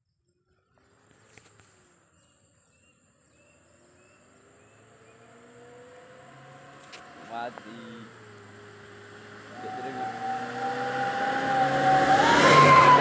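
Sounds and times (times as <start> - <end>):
howling whistle exhaust: 9.1 - 13.0.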